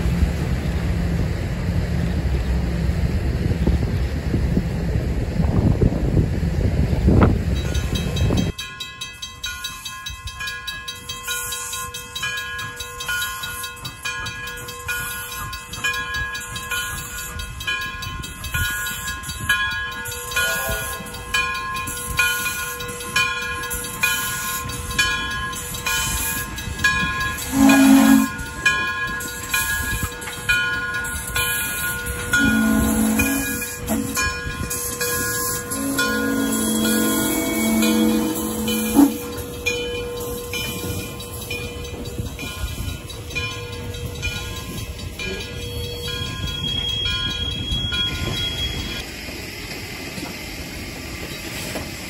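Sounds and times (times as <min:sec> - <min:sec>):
wind buffeting microphone: 0:00.0 - 0:08.6, 0:13.8 - 0:49.0
steam locomotive chuffing: 0:00.0 - 0:52.0
steady ringing: 0:07.7 - 0:48.9
steam whistle blasts: 0:27.4 - 0:28.5, 0:32.3 - 0:34.2, 0:35.2 - 0:39.7.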